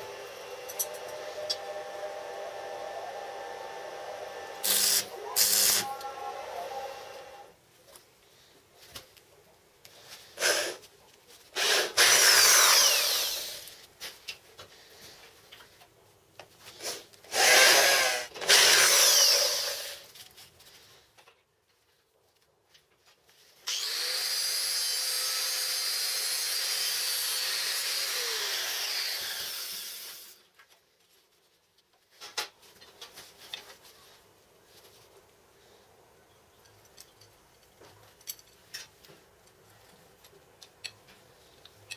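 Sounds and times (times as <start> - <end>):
drill cutting steel: 0.0 - 7.5, 11.6 - 13.7, 17.3 - 20.0, 23.7 - 30.4
power tool motor running: 0.0 - 7.5, 11.6 - 13.7, 17.3 - 20.0, 23.7 - 30.4
welding arc crackling: 4.6 - 6.0.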